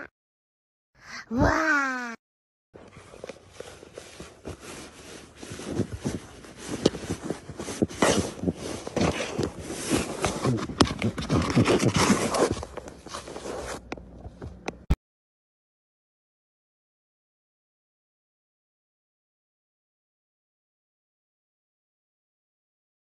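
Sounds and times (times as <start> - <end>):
scratches on paper bag: 3.4 - 13.8.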